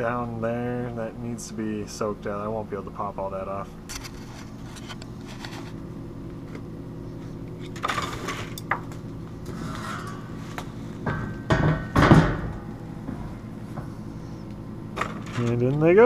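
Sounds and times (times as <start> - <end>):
steady low hum: 0.0 - 16.0
loud metal lid clatter: 9.4 - 13.3.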